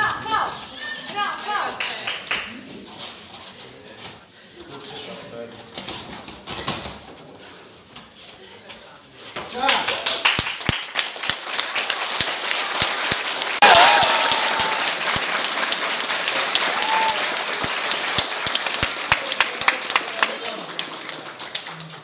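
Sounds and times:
loud claps close by: 0:09.6 - 0:22.0
audience applauding: 0:09.7 - 0:22.0
shrill cheers: 0:13.6 - 0:15.0, 0:16.6 - 0:17.4.

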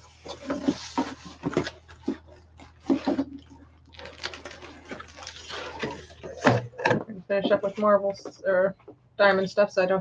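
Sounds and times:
cardboard scraping rustle: 0:00.0 - 0:06.4.

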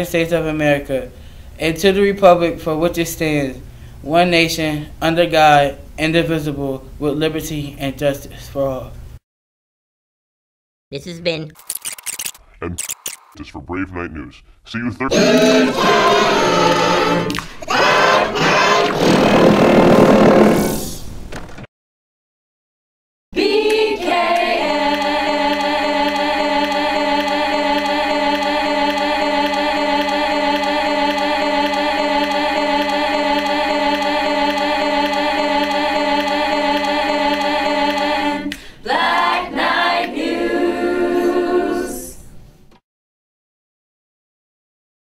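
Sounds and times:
choir singing a held chord: 0:15.1 - 0:20.7, 0:23.4 - 0:42.3.

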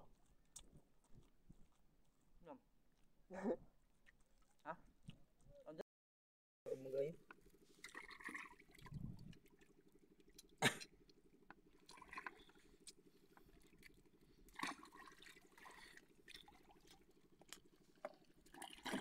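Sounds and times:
shallow water splashing: 0:07.8 - 0:10.3, 0:11.6 - 0:19.0.

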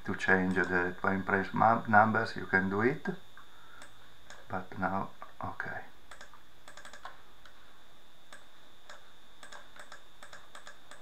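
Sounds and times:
faint steady hiss: 0:00.0 - 0:11.0
thin high whine: 0:00.0 - 0:11.0
mouse and keyboard clicks: 0:06.1 - 0:07.2, 0:08.3 - 0:11.0.

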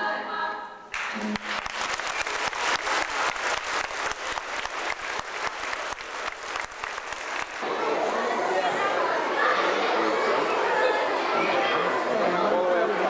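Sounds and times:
audience applauding: 0:00.9 - 0:08.0.

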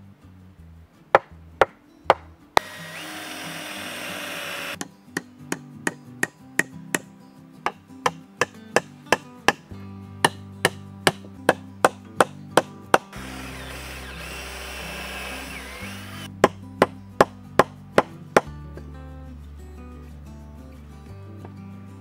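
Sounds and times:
hammer striking logs: 0:01.2 - 0:07.1, 0:07.7 - 0:09.6, 0:10.2 - 0:18.5
cordless drill whining: 0:02.6 - 0:04.8, 0:13.2 - 0:16.3
soft background music: 0:04.8 - 0:22.0.

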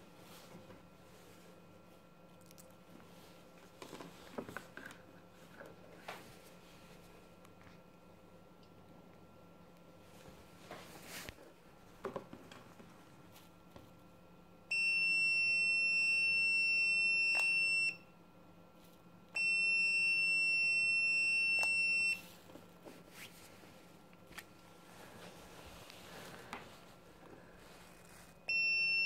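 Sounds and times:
multimeter continuity beeping: 0:14.7 - 0:18.1, 0:19.4 - 0:22.2, 0:28.4 - 0:29.0.

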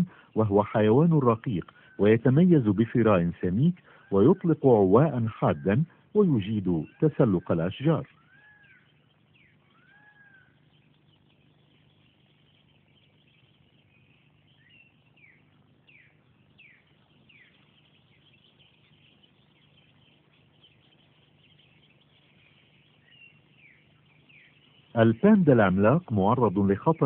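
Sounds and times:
faint animal calls: 0:00.0 - 0:27.0
low steady hum: 0:00.0 - 0:27.0.

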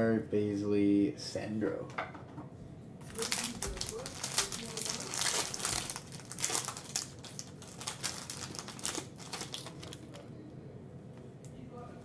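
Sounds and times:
foil wrapper crinkling: 0:03.0 - 0:10.2.

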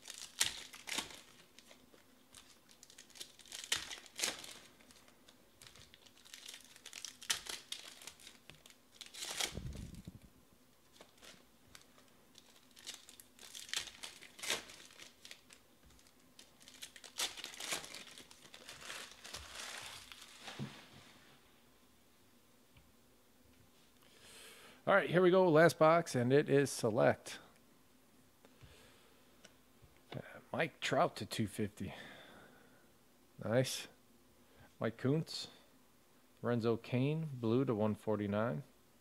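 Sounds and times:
foil wrappers tearing and crinkling: 0:00.0 - 0:10.1, 0:10.9 - 0:20.6.

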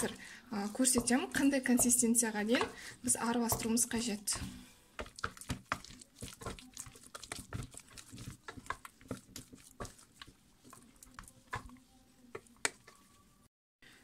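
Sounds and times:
wooden spatula beating dough in pan: 0:00.0 - 0:13.4.

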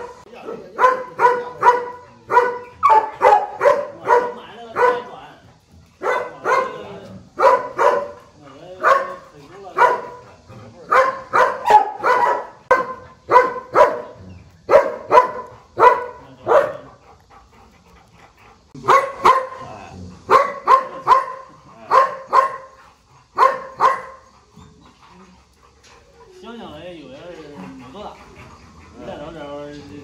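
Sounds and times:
dog barking: 0:00.0 - 0:05.2, 0:06.0 - 0:08.2, 0:08.8 - 0:10.2, 0:10.9 - 0:16.9, 0:18.8 - 0:22.8, 0:23.4 - 0:24.3.

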